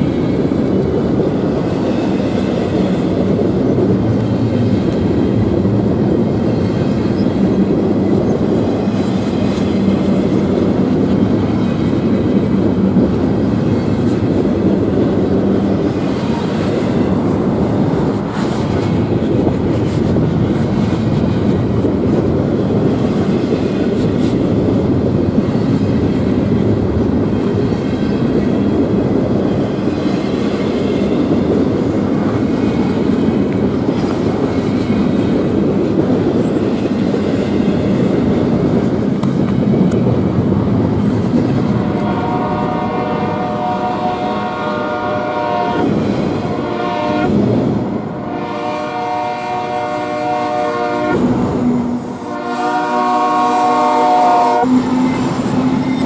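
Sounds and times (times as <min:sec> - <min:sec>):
train wheels rumbling on rails: 0:00.0 - 0:56.0
train air horn blasts: 0:41.7 - 0:47.4, 0:48.1 - 0:56.0.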